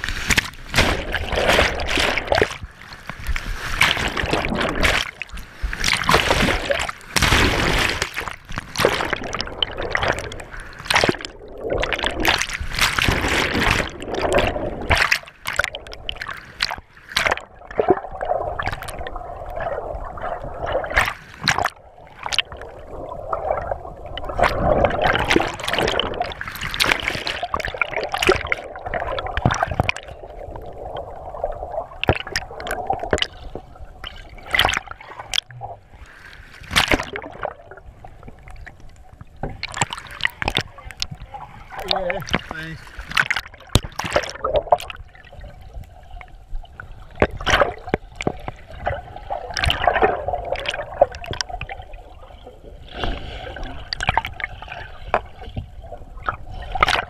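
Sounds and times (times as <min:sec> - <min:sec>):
sudden splashes and knocks: 0:00.0 - 0:18.0, 0:32.0 - 0:33.6, 0:36.6 - 0:37.6, 0:39.4 - 0:45.0.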